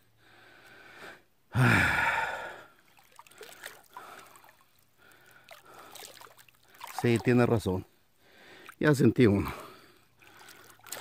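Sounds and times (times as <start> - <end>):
man sighing heavily: 1.5 - 2.7
faint water sounds: 1.6 - 11.0.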